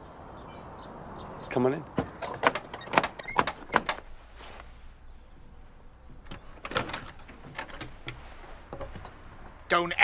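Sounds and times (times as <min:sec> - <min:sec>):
wooden door knocks and clicks: 0:02.0 - 0:04.0, 0:06.2 - 0:08.2.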